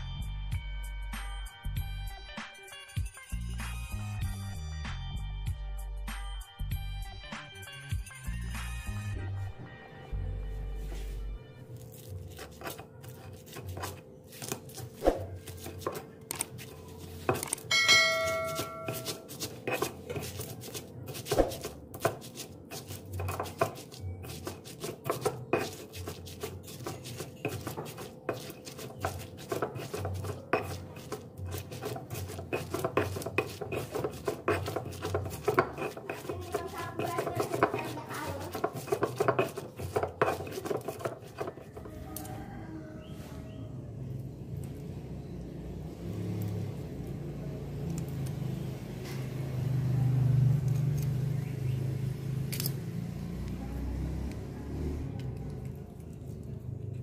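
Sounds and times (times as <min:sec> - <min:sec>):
stone pestle pounding and grinding: 0:11.8 - 0:42.0.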